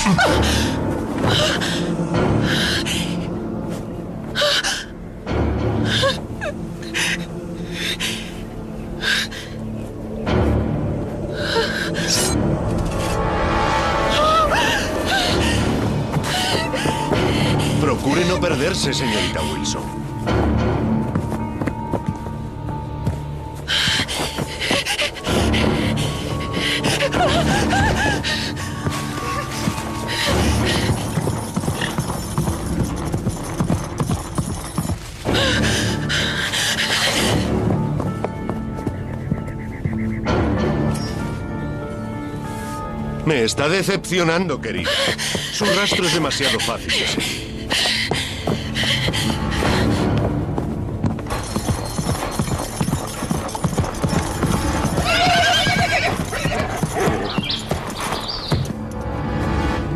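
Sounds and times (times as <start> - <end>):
horse hoofbeats galloping: 15.2 - 40.3, 44.6 - 59.0
horse whinny: 54.2 - 57.6.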